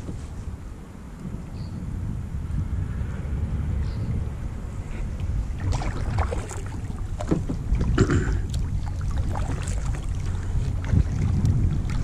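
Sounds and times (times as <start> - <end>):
wind rumble on microphone: 0.0 - 12.0
paddle splashing in water: 5.5 - 12.0.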